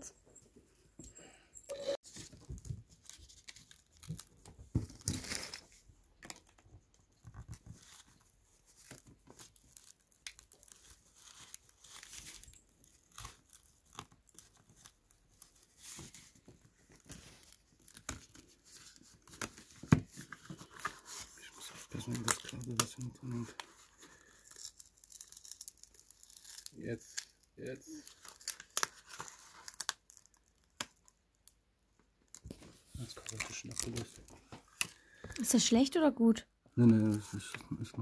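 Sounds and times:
adhesive crackling and tearing: 2.9 - 6.6, 7.4 - 19.6, 21.8 - 31.6, 32.3 - 35.2.

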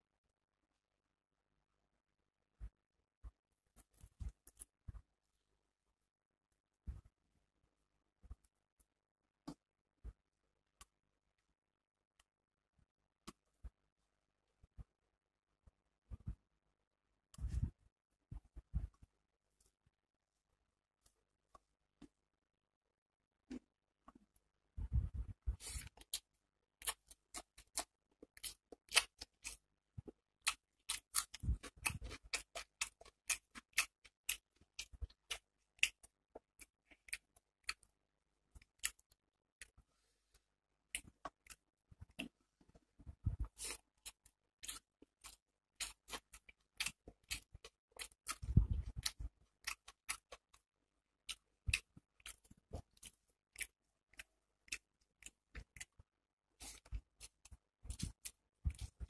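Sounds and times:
chewing: 25.6 - 37.9, 51.3 - 56.0.

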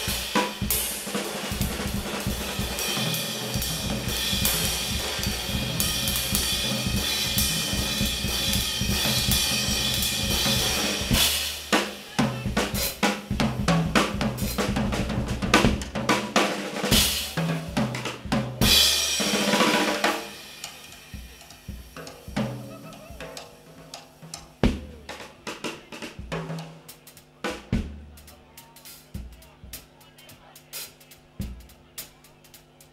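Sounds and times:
cymbal wash: 0.0 - 13.1
jazz drum solo: 0.0 - 32.9.

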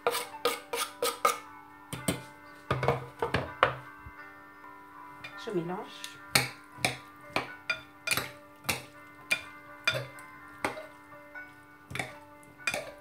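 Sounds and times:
quiet background music: 0.0 - 13.0
salad servers knocking a bowl: 11.9 - 13.0.

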